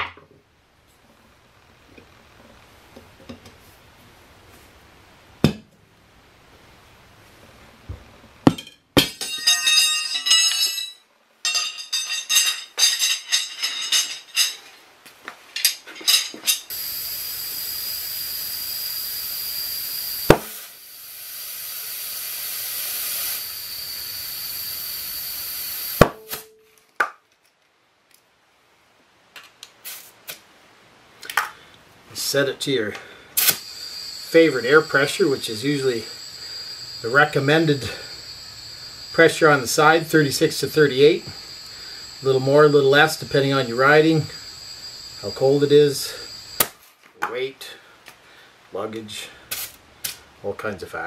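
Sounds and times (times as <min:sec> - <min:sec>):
tire irons clinking on rim: 0:09.1 - 0:14.7
compressed air hissing: 0:16.7 - 0:26.1, 0:33.1 - 0:46.6
sharp snap: 0:20.3 - 0:20.6, 0:33.4 - 0:33.6, 0:46.6 - 0:46.8.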